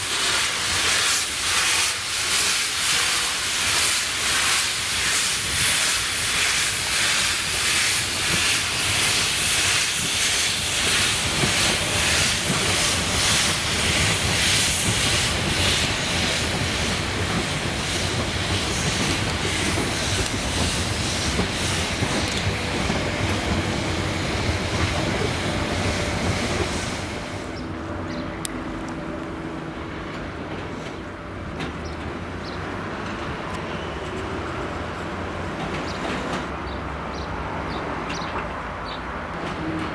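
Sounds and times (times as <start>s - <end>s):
steam hissing: 0.0s - 27.7s
steam locomotive exhaust chuffs: 0.0s - 28.9s
carriages clattering over rails: 8.2s - 29.4s, 30.0s - 36.8s, 37.6s - 39.9s.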